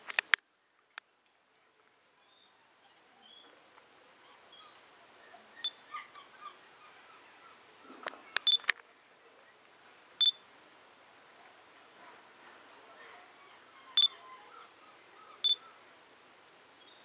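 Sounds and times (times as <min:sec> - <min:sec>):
sharp clicks: 0:00.0 - 0:01.4, 0:08.0 - 0:08.8
short chirps: 0:08.4 - 0:08.7
short high beeps: 0:08.4 - 0:08.7, 0:10.2 - 0:10.4.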